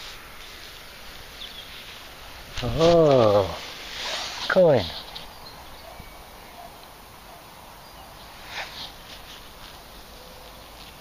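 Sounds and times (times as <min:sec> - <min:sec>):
fingers scraping damp soil: 0:02.5 - 0:04.9, 0:08.4 - 0:11.0.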